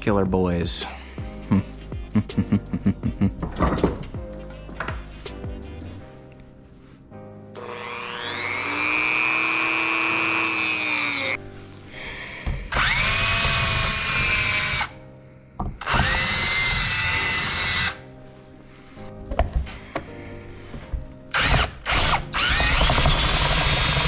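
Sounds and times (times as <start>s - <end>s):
cordless drill drilling: 7.6s - 11.4s, 12.7s - 15.0s, 15.8s - 18.0s, 21.3s - 24.0s
rotary tool cutting steel: 7.6s - 11.4s, 12.7s - 15.0s, 15.8s - 18.0s, 21.3s - 24.0s.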